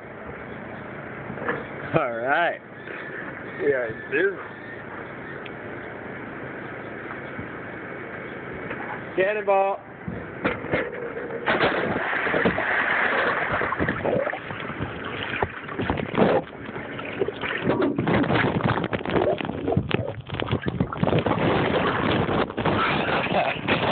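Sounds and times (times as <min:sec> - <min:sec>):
muffled underwater churning bubbles: 0:11.8 - 0:23.9.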